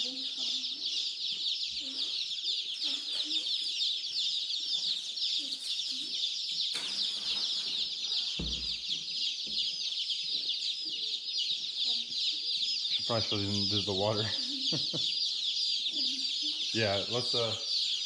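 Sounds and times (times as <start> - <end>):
chicks peeping: 0.0 - 18.0.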